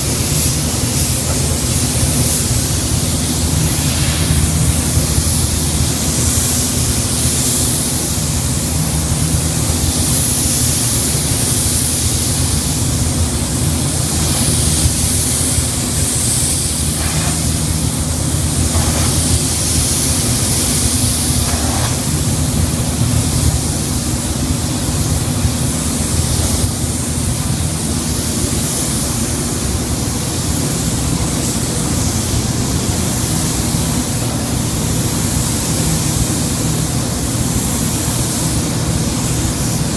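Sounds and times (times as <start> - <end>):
paint spray gun hissing: 0.0 - 39.9.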